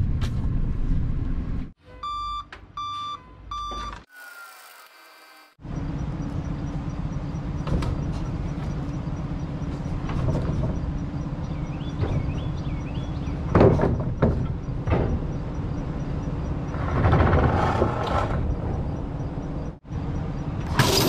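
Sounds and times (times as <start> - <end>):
tractor engine running: 5.6 - 17.4.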